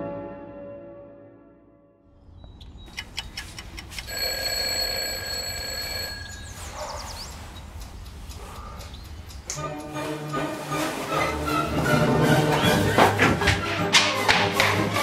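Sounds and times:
clicks: 2.5s - 11.6s
alarm clock ringing: 4.0s - 12.4s.

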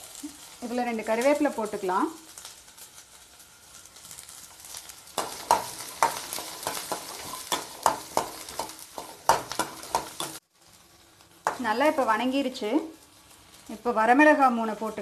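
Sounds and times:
onions sizzling in oil: 0.0s - 15.0s
spatula scraping metal pan: 5.2s - 10.4s.

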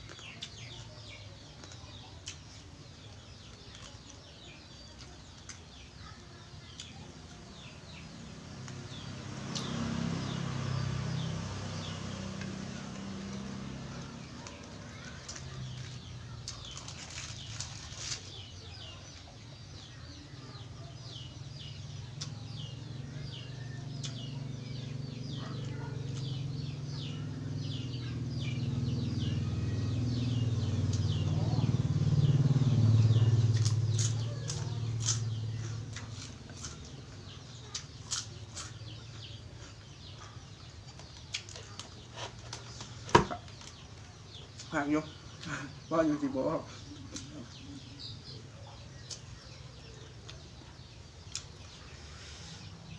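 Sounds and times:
chewing and crunching: 0.0s - 7.6s, 11.6s - 19.6s, 33.4s - 44.8s, 48.8s - 52.1s
birds chirping: 0.0s - 52.9s.

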